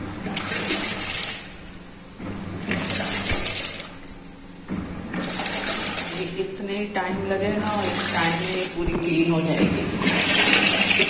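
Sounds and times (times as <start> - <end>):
washing machine water churning: 0.0 - 11.0.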